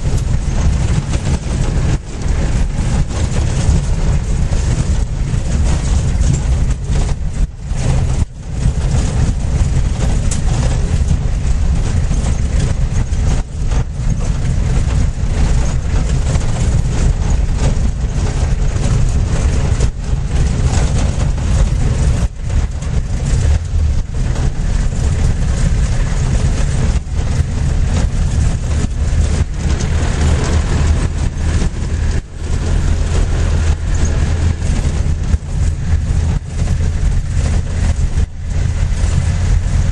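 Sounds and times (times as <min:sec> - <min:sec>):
vehicle engine and road rumble: 0:00.0 - 0:39.9.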